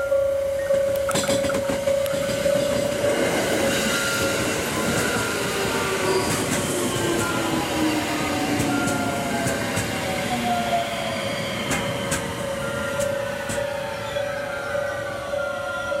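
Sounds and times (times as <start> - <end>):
steady ringing tone: 0.0 - 6.3
train wheels rumbling over rails: 0.7 - 14.1.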